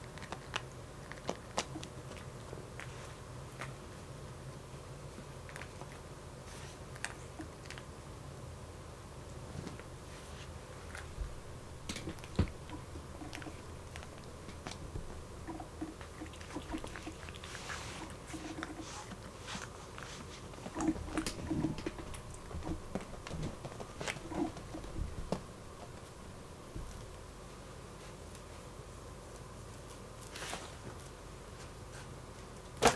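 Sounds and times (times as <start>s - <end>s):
cat crunching dry kibble: 0.0s - 3.8s, 5.2s - 6.1s, 10.8s - 27.2s.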